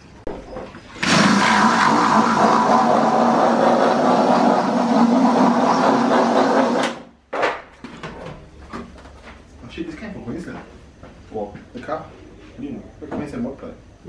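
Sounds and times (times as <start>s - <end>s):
cordless drill boring: 1.0s - 7.0s.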